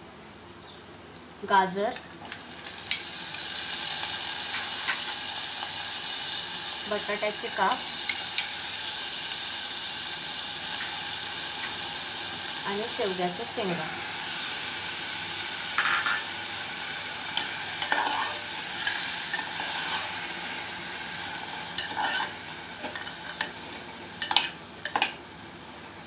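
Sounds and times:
vegetables sizzling in oil: 0.0s - 26.0s
metal spoon scraping pot: 21.8s - 22.3s.

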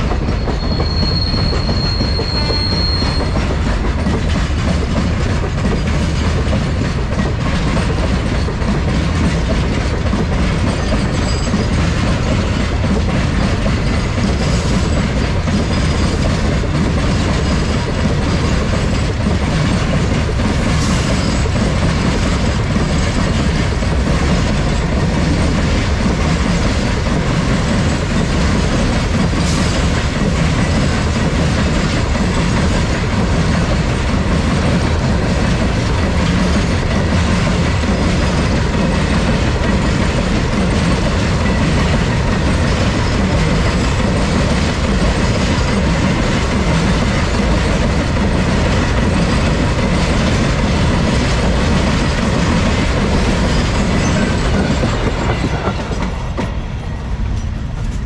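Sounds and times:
train wheels rolling on track: 0.0s - 58.0s.

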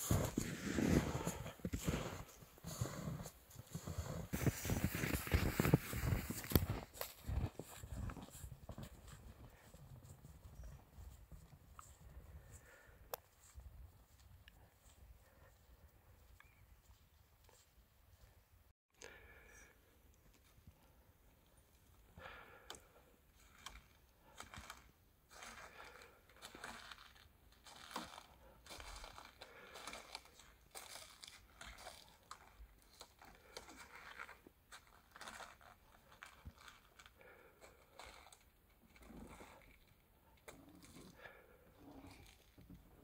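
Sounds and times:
boots crunching in snow: 0.0s - 10.4s.

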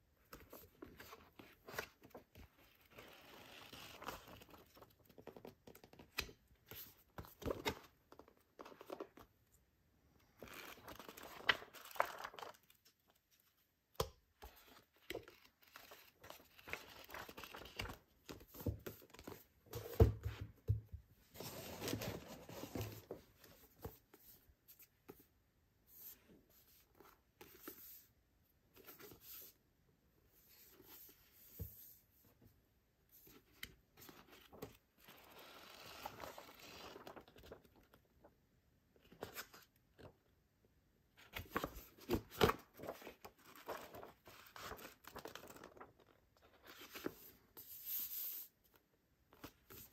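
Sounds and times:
book pages rustling: 10.4s - 13.6s, 14.4s - 25.3s, 33.2s - 38.0s, 41.3s - 48.5s
book thump: 19.7s - 21.0s.

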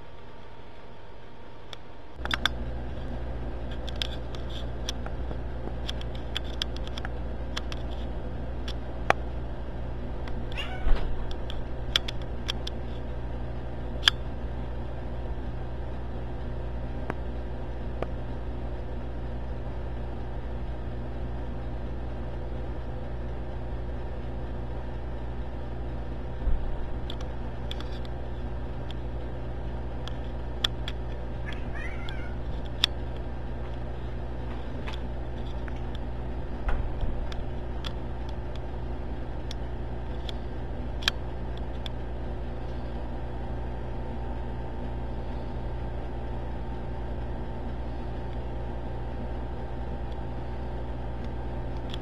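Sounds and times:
low hum: 0.0s - 52.0s
wavering cat call: 10.6s - 11.0s, 31.4s - 32.4s.

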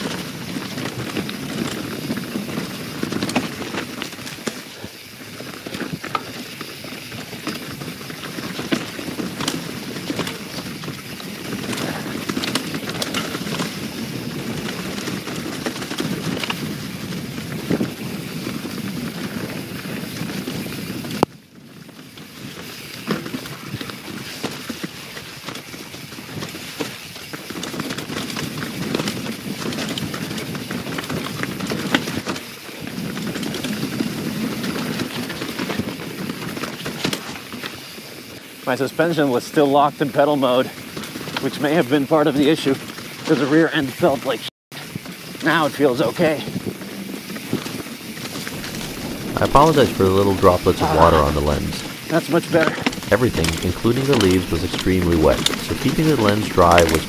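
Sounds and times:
bike tyres rolling over rock: 48.2s - 50.7s.

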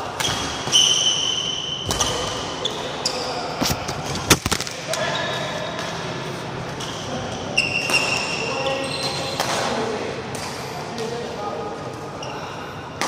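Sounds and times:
shoes squeaking on court floor: 0.2s - 9.7s.

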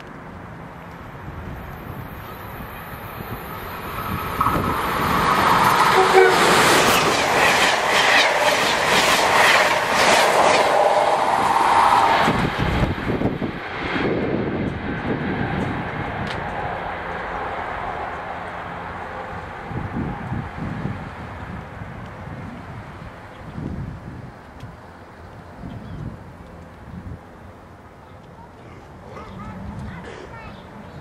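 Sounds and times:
passenger train passing at speed: 0.0s - 31.0s
wheels clicking over rail joints: 2.1s - 11.8s.

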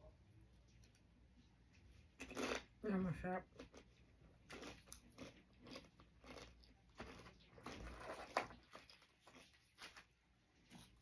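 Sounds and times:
tortilla chips being chewed: 2.2s - 2.7s, 3.5s - 11.0s.

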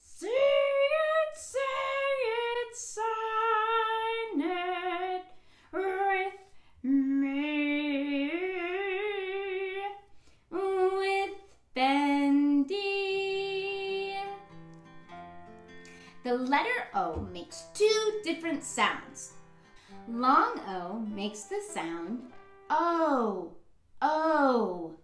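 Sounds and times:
woman singing unaccompanied: 0.0s - 14.5s.

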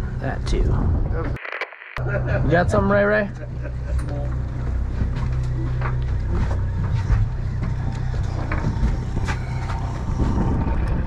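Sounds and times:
boat engine idling: 3.0s - 10.9s.

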